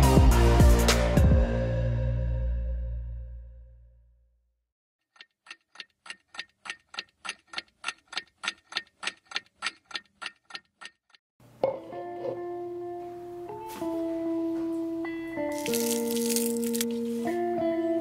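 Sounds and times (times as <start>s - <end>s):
timer ticking: 5.1s - 11.2s.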